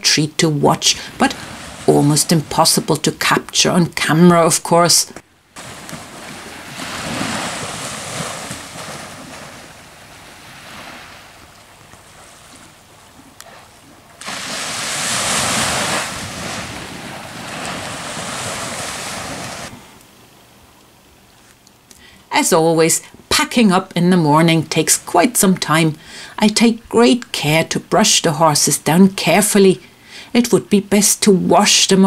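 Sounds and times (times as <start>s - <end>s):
surf washing onto beach: 1.0s - 2.9s, 5.6s - 12.8s, 14.2s - 19.8s.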